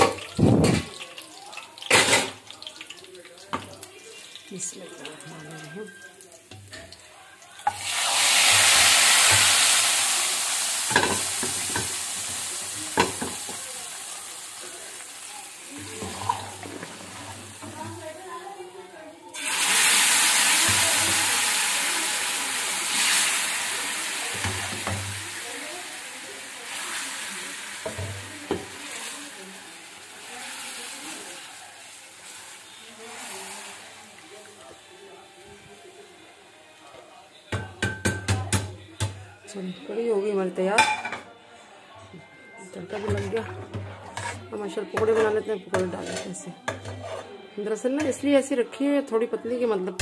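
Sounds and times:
hot oil sizzling: 0.0 - 38.8.

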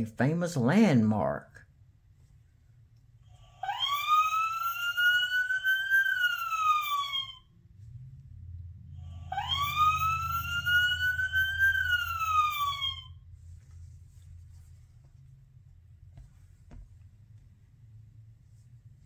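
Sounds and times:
recorded police siren wailing: 3.5 - 7.5, 8.8 - 13.2.

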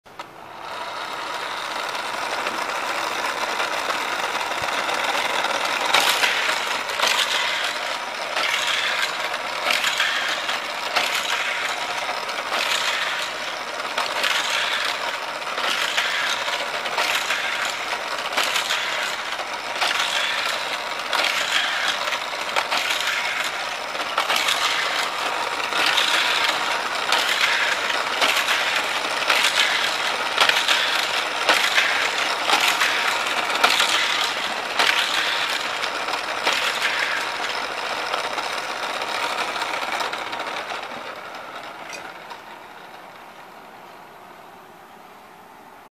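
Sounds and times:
toy cars clacking: 0.1 - 44.5
toy track boosters whirring: 0.1 - 45.2.

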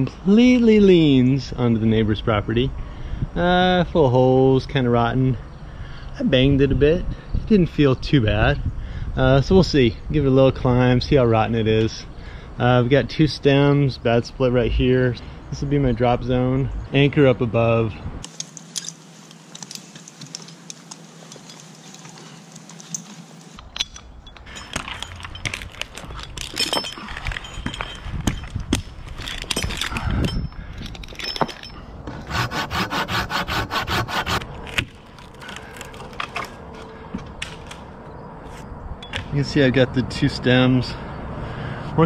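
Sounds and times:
scraping on tree bark: 18.2 - 23.7, 32.0 - 38.7
rope hardware clinking: 18.2 - 33.1.

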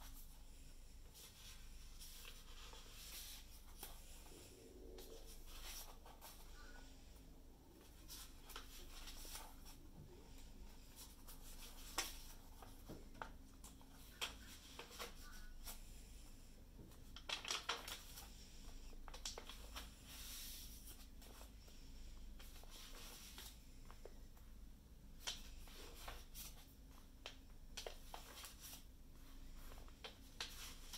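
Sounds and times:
paper pages rustling: 1.1 - 4.4, 5.0 - 6.9, 7.8 - 15.8, 17.0 - 18.3, 25.2 - 30.9.

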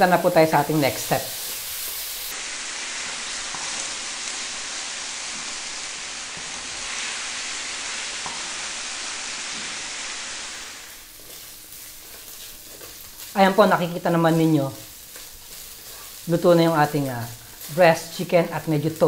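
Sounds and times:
chicken sizzling in wok: 0.0 - 19.0
wooden spatula stirring: 11.2 - 13.4, 14.8 - 16.2.

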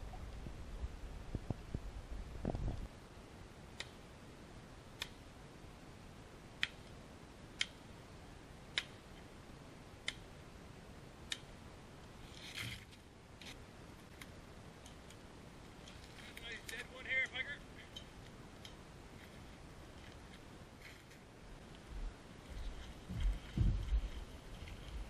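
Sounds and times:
dry branches rustling: 12.0 - 25.0.

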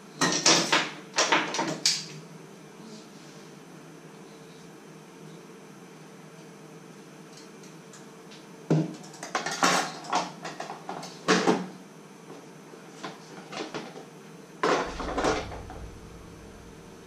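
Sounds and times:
low electrical hum: 11.7 - 17.0
low rumble: 14.8 - 17.0.

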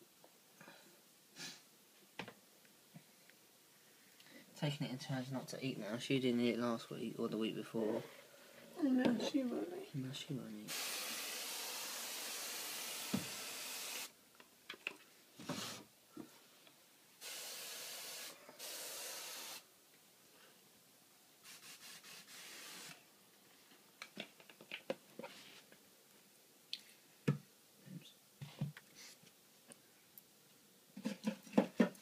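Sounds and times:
snake hissing: 10.7 - 14.1, 17.2 - 19.6, 21.5 - 23.0.

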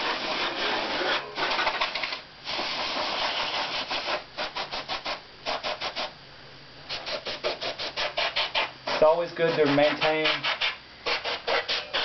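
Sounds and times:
aerosol can hissing: 0.0 - 6.1.

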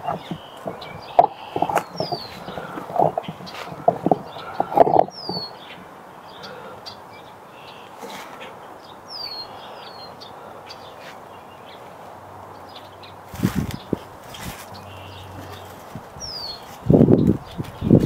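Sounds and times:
camera handling knocks and rustling: 0.0 - 5.5
low thumps: 0.0 - 5.5
small birds chirping: 0.0 - 18.0.

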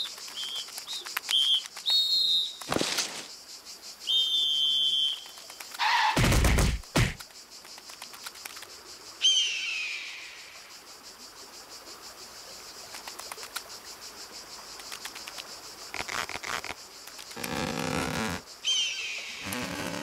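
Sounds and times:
insects chirring: 0.0 - 20.0
loud falling whistle-like chirp: 1.3 - 2.7, 4.0 - 6.2, 9.2 - 10.5
light ticks: 14.8 - 15.5.

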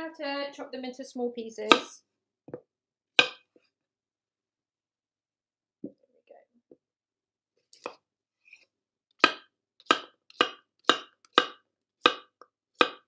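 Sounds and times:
knife chopping on cutting board: 1.7 - 1.9, 3.2 - 3.6, 9.2 - 13.0.

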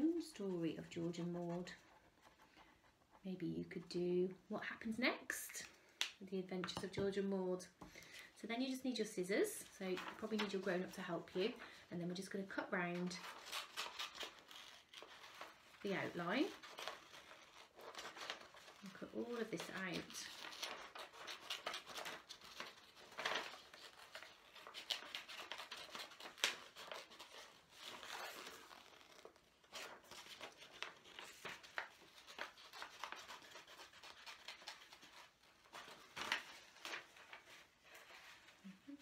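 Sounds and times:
paper rustling: 9.9 - 11.8, 13.0 - 39.0
scissors snipping paper: 13.2 - 37.0.

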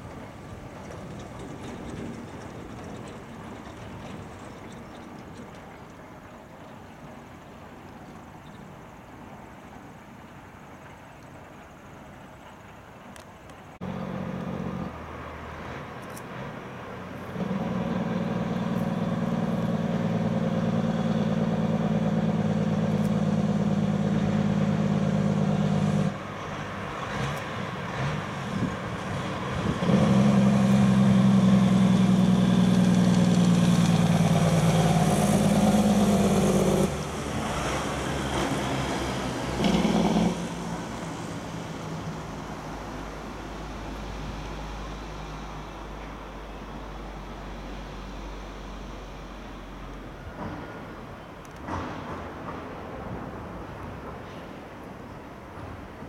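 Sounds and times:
diesel truck engine passing: 13.8 - 51.1.

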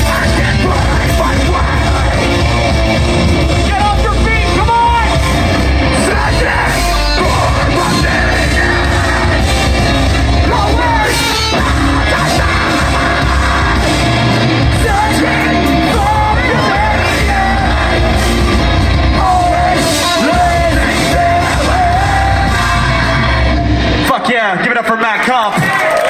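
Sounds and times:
distorted electric guitar: 0.0 - 24.8
drums: 0.0 - 26.0
people yelling vocals: 3.6 - 23.8.

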